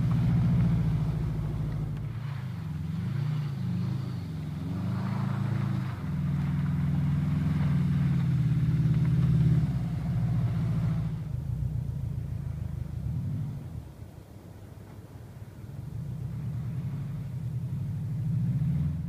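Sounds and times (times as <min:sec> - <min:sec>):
car engine revving: 0:00.0 - 0:14.1, 0:15.9 - 0:19.0.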